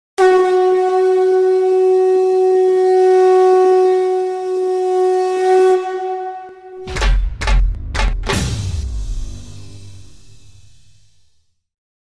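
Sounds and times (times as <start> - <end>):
wind instrument long note: 0.2 - 6.8.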